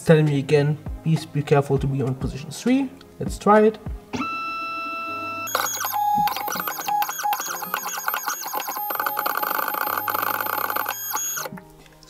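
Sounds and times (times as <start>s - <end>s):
stepper motors whining: 4.3s - 11.5s.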